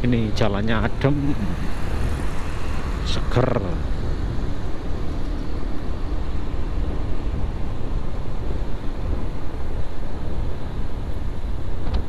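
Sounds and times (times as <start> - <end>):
wind rushing on microphone: 0.0 - 12.0.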